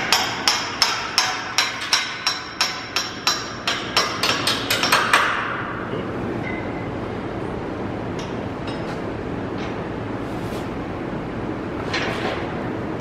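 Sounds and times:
hammer striking steel: 0.0s - 5.8s.

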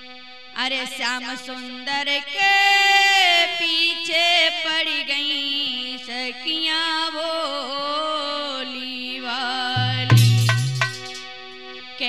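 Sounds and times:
woman singing folk song: 0.6s - 9.8s
held low drone note: 9.8s - 11.0s.

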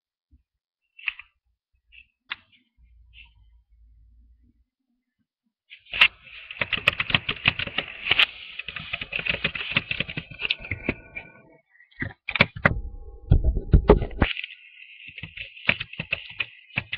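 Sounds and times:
rapid clicks and taps: 6.0s - 11.3s, 15.1s - 16.9s.

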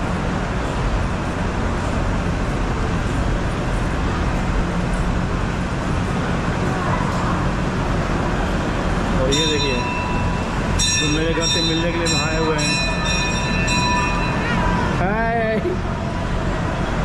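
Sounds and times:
low rumble of distant traffic: 0.0s - 17.0s
crowd hubbub: 9.3s - 17.0s.

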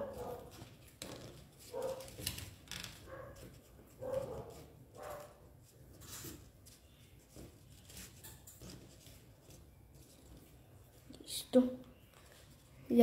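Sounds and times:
paper rustling and crinkling: 0.0s - 11.1s, 12.0s - 12.9s.

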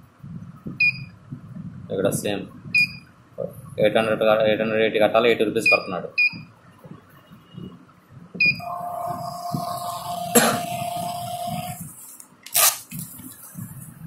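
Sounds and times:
receipt printer whining: 8.6s - 11.9s
receipt tearing rasp: 12.0s - 13.4s.

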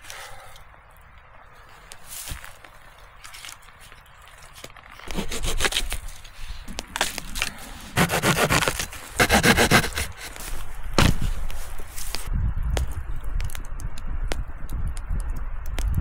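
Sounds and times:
wooden branches scraping: 1.2s - 12.3s.

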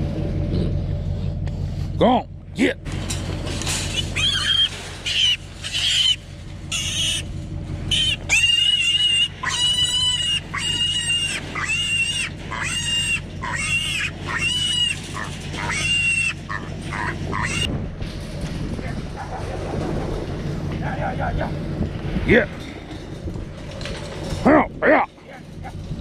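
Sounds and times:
piglets squealing: 3.9s - 7.3s, 7.9s - 17.7s.

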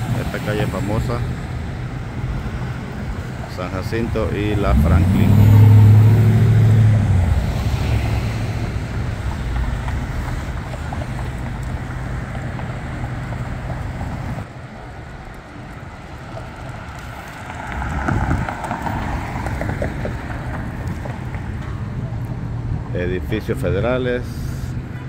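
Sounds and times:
vehicle passing: 0.0s - 15.0s, 15.6s - 22.8s
car engine and tyres: 0.0s - 25.0s
wind rumbling on microphone: 4.4s - 22.9s.

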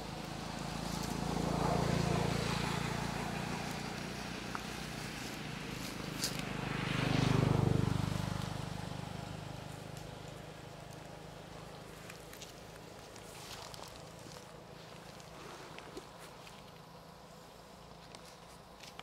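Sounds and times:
vehicle driving past: 0.0s - 12.2s.

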